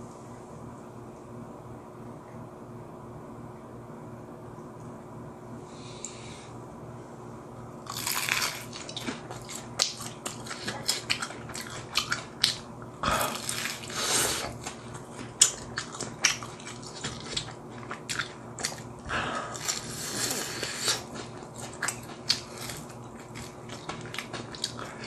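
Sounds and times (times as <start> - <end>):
crunchy fried chicken chewing: 7.9 - 25.0.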